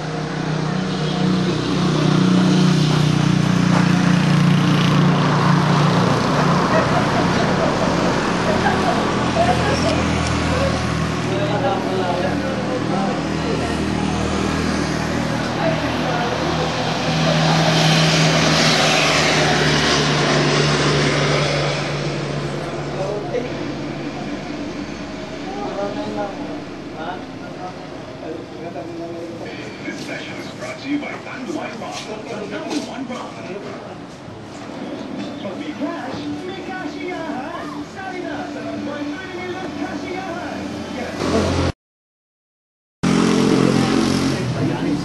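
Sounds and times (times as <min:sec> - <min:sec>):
engine droning: 0:00.0 - 0:41.7, 0:43.0 - 0:45.0
road noise: 0:00.0 - 0:41.8, 0:43.0 - 0:45.0
street traffic noise: 0:00.0 - 0:41.8, 0:43.0 - 0:45.0.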